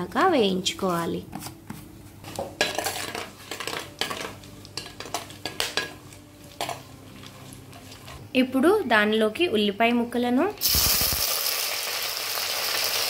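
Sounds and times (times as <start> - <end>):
metal spoon scraping a clay pot: 2.6 - 8.2
spices sizzling in hot oil: 10.6 - 13.0.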